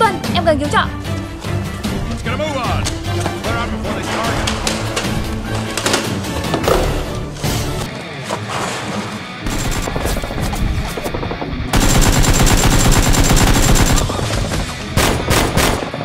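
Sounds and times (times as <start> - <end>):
background music: 0.0 - 16.0
automatic gunfire: 9.5 - 10.4, 11.2 - 16.0.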